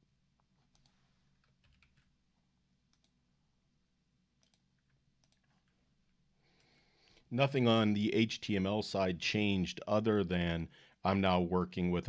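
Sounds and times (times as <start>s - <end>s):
computer mouse clicks: 0.7s - 2.1s, 2.9s - 3.2s, 4.4s - 5.8s.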